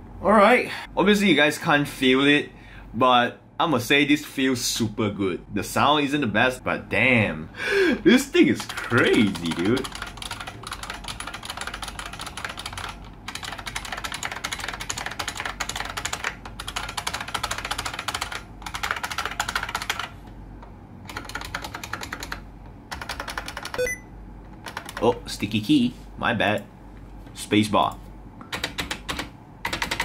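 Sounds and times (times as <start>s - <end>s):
fast typing on clicky keyboard: 8.5s - 20.1s, 21.0s - 23.9s, 24.6s - 25.2s, 28.5s - 30.0s.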